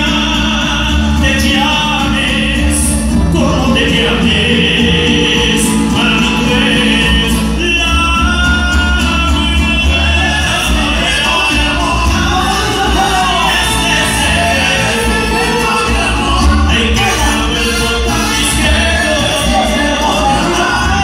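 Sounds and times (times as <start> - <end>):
strummed guitars and bass: 0.0 - 21.0
trumpets playing: 0.0 - 21.0.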